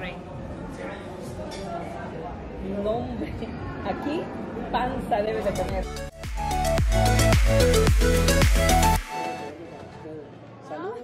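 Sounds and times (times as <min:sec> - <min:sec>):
faint background noise: 0:00.0 - 0:06.0
electronic music with bass beat: 0:05.5 - 0:09.5.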